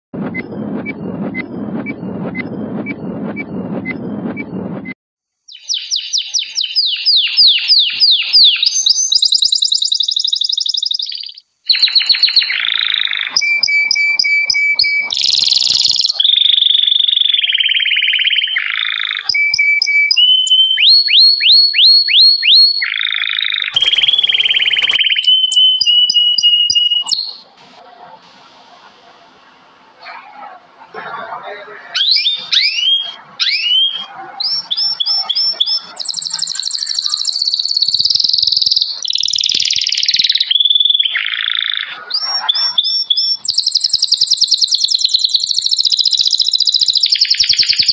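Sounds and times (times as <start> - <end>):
countdown whoosh with ticks: 0.2 - 5.0
songbirds singing: 5.5 - 27.7, 29.9 - 47.9.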